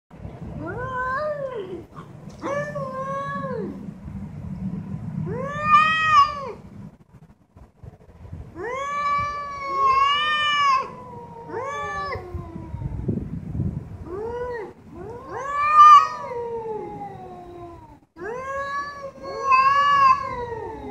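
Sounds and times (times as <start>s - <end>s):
cats yowling: 0.6s - 3.8s, 5.2s - 6.6s, 8.6s - 13.1s, 14.0s - 20.9s.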